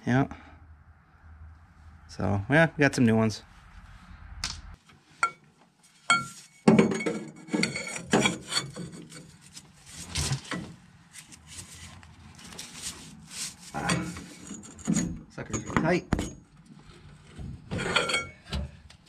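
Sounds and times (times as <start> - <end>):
steel tools clinking and scraping: 6.0 - 9.5, 13.7 - 15.9, 17.8 - 18.7.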